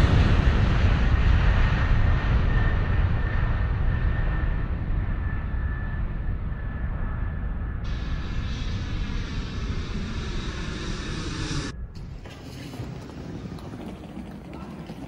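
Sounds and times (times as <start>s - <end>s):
jet aircraft rumble: 0.0s - 15.0s
faint high whine: 2.7s - 12.6s.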